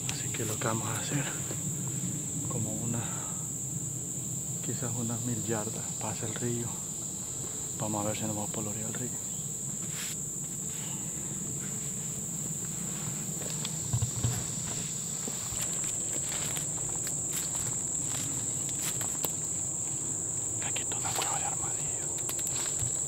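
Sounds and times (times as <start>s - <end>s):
high-pitched insect chorus: 0.0s - 23.0s
brushing and crackling: 9.7s - 23.0s
footsteps through undergrowth: 9.8s - 23.0s.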